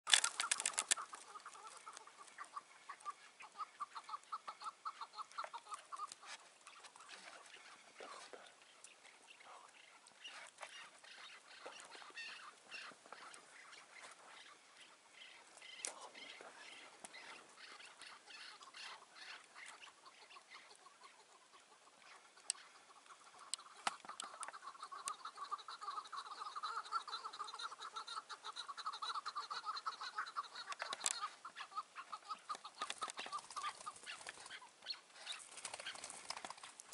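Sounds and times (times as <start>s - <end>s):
sharp clicks: 0.1s - 1.2s
partridges clucking: 0.1s - 7.0s
partridges chattering calls: 0.1s - 36.9s.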